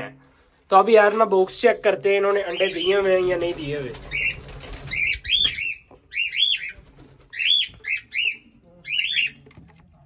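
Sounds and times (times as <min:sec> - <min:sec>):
cockatiels screeching calls: 0:04.1 - 0:09.4.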